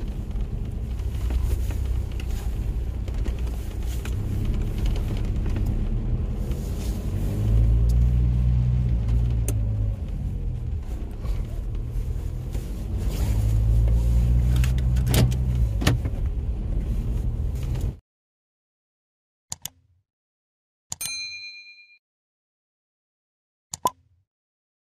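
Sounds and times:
car engine and tyres rumble: 0:00.0 - 0:18.0.

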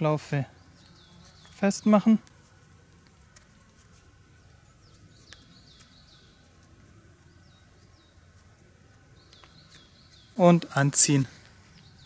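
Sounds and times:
faint bird chirps: 0:09.1 - 0:12.0.

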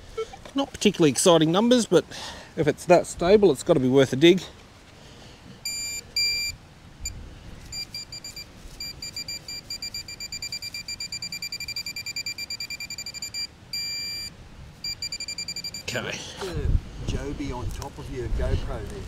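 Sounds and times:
metal detector pinpointer beeping: 0:05.6 - 0:15.9.

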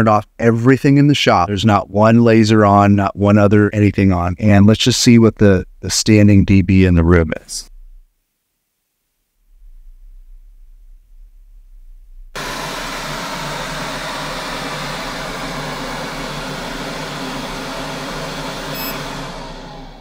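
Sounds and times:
fume extractor fan running: 0:12.4 - 0:20.0.

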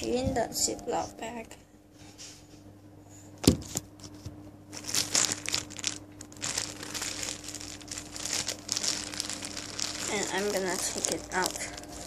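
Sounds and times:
plastic bag crinkling: 0:04.7 - 0:12.0.

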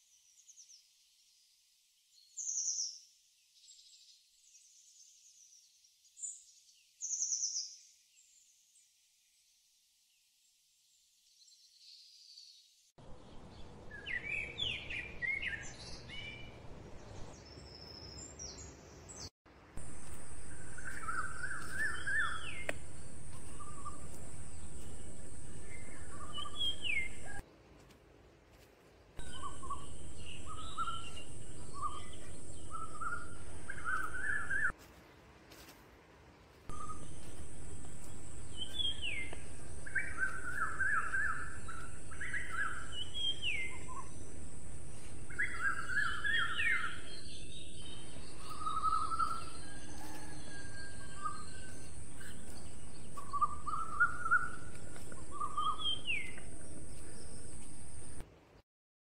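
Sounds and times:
small birds chirping: 0:11.3 - 0:35.3, 0:36.7 - 0:58.3
steady high-pitched hiss: 0:19.5 - 0:58.2
low background rumble: 0:19.8 - 0:27.4, 0:29.2 - 0:34.7, 0:36.7 - 0:58.2.

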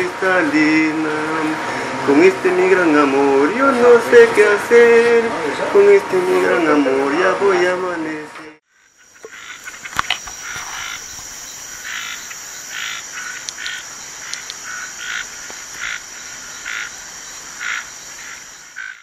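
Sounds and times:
frogs croaking: 0:08.7 - 0:19.0
high-pitched insect drone: 0:08.7 - 0:19.0
sharp clicks: 0:13.4 - 0:14.6.

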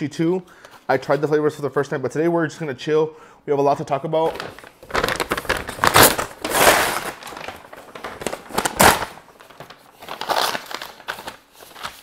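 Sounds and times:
paper bag crinkling and rustling: 0:04.2 - 0:12.0.

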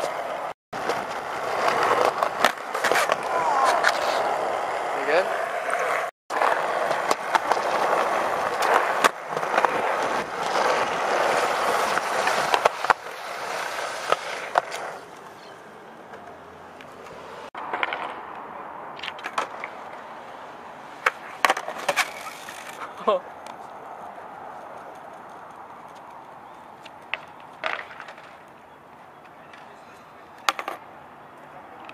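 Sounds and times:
skateboard popping and landing: 0:00.0 - 0:15.4, 0:16.1 - 0:20.1, 0:20.9 - 0:23.6, 0:26.8 - 0:28.6, 0:30.4 - 0:30.9
skateboard wheels rolling on concrete: 0:00.0 - 0:31.9.

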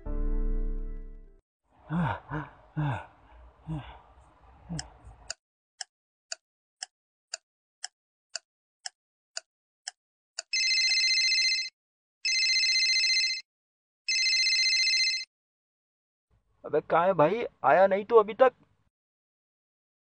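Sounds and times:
mobile phone ringing: 0:10.5 - 0:13.4, 0:14.1 - 0:15.3.

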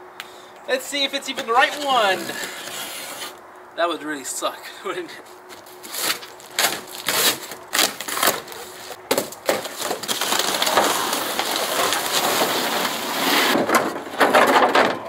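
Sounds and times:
cardboard ripping: 0:01.4 - 0:03.4, 0:05.5 - 0:14.4
plastic wrap crinkling: 0:05.5 - 0:13.6.

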